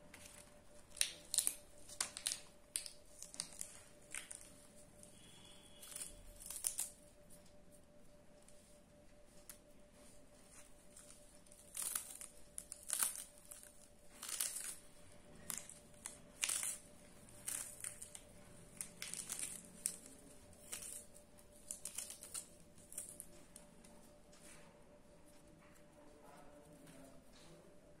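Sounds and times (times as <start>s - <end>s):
spinach leaves tearing: 0.1s - 7.2s, 10.9s - 23.4s.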